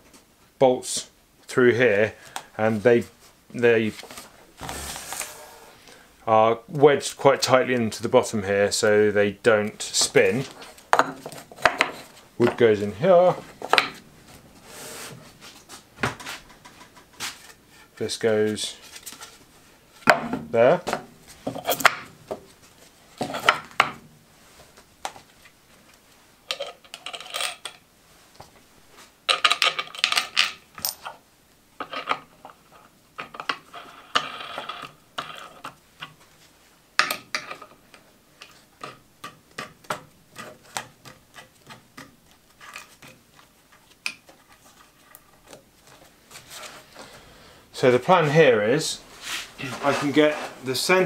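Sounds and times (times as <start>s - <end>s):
metal parts clinking and rattling: 26.5s - 27.8s.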